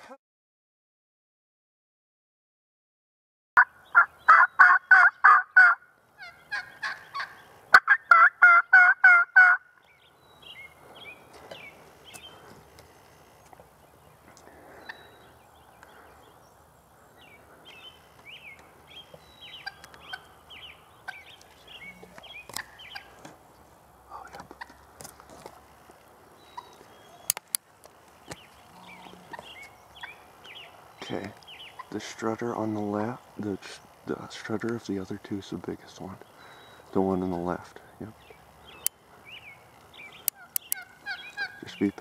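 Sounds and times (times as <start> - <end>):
turkeys calling: 3.6 - 42.0.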